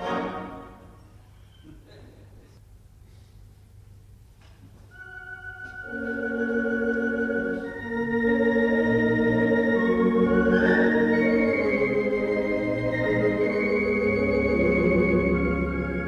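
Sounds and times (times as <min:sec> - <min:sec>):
pipe organ chords: 0:04.9 - 0:16.0.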